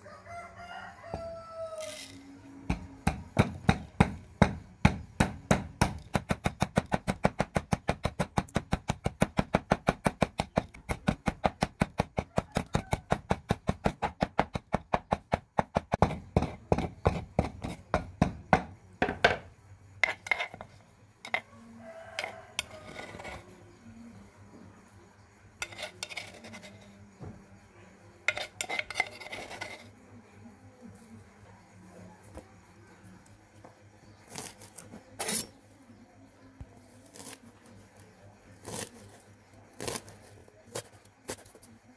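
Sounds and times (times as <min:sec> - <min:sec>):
metal spoon scraping mortar: 0:01.7 - 0:02.4, 0:16.0 - 0:18.0, 0:20.0 - 0:21.5, 0:22.1 - 0:23.7, 0:25.6 - 0:27.0, 0:28.2 - 0:30.0, 0:34.2 - 0:35.6, 0:36.9 - 0:37.7, 0:38.5 - 0:41.7
pestle pounding in mortar: 0:02.7 - 0:19.5.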